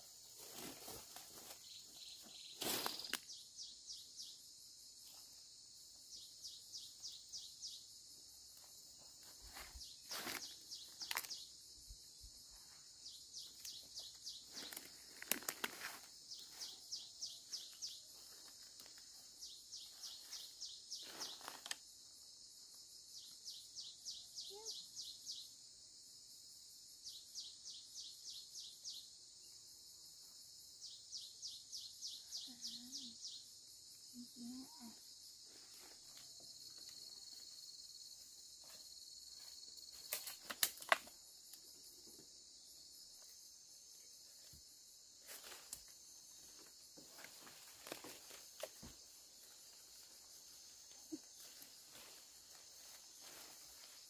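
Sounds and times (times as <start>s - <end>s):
insects chirping: 0.0s - 54.0s
leafy stems rustling and snapping: 11.0s - 11.3s, 14.5s - 16.1s, 39.9s - 41.1s, 47.2s - 48.9s.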